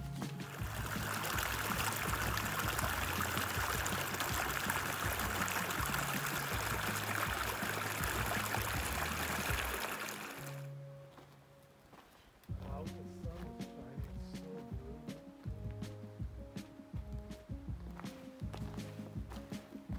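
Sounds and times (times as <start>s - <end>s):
stream water rushing: 0.4s - 10.7s.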